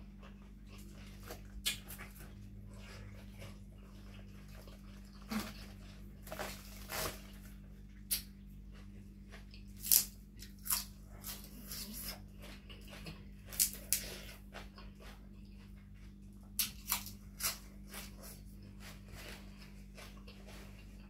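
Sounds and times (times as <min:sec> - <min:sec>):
steady low hum: 0:00.0 - 0:21.0
raw vegetables crunching: 0:00.2 - 0:21.0.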